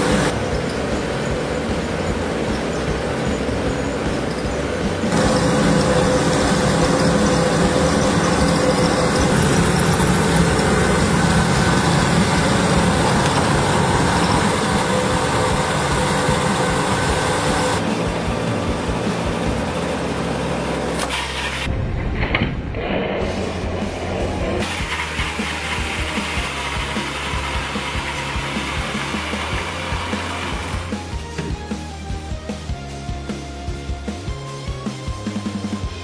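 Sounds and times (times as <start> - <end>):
treadmill belt whirring: 0.0 - 21.2.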